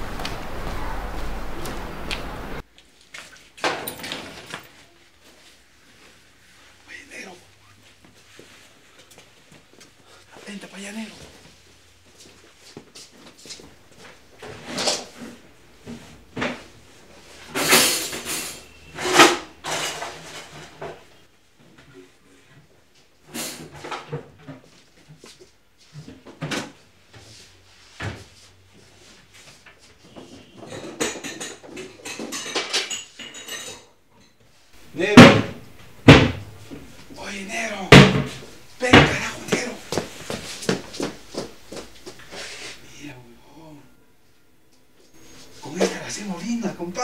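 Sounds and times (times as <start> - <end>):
scraping and knocking in kitchen: 14.0 - 22.5, 30.0 - 34.0, 34.8 - 37.2, 37.9 - 42.7.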